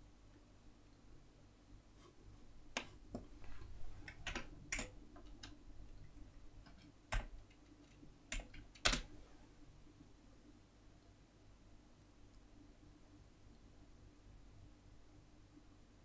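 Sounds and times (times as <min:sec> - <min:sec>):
keyboard keystroke clicks: 0:04.1 - 0:05.6, 0:06.6 - 0:09.1.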